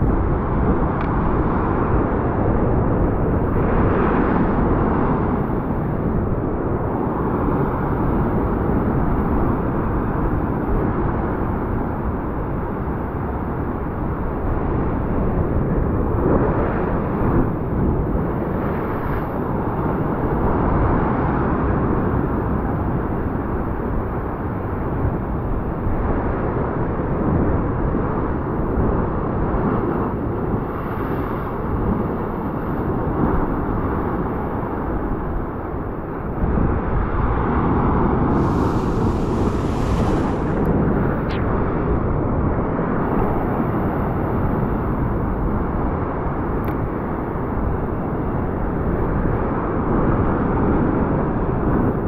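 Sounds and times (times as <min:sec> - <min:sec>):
ocean surf breaking on rocks: 0:38.3 - 0:41.3.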